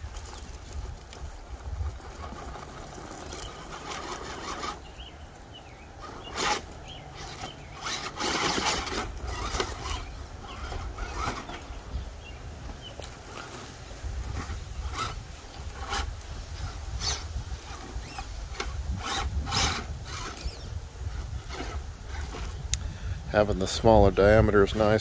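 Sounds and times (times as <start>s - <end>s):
tires scraping and knocking on bricks: 0.0s - 22.6s
electric motor and gears whirring: 0.0s - 25.0s.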